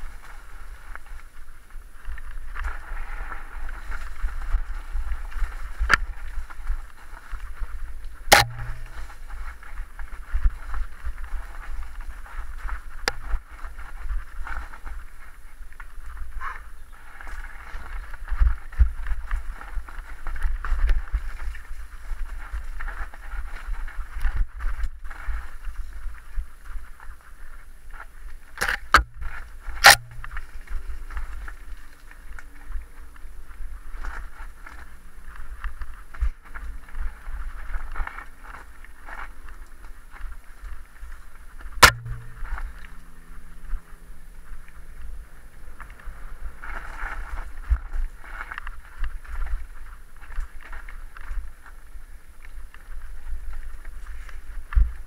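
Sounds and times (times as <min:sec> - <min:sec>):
bike tyres on dirt trail: 0:00.0 - 0:55.0
wind rumbling on microphone: 0:00.0 - 0:55.0
sharp knock: 0:08.3 - 0:09.0, 0:29.8 - 0:30.3, 0:41.8 - 0:42.8
bike rattling and knocking: 0:08.3 - 0:09.8, 0:28.6 - 0:30.8, 0:41.8 - 0:47.7.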